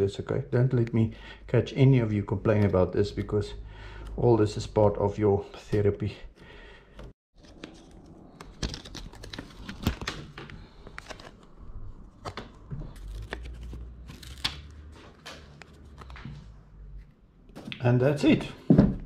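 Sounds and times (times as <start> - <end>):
paper rustling and crinkling: 7.4 - 16.4
backing paper peeling: 12.2 - 16.2.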